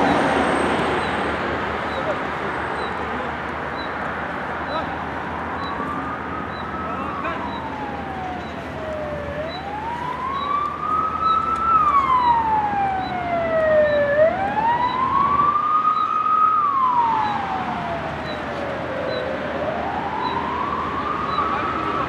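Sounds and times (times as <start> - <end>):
emergency vehicle siren wailing: 4.5 - 22.0.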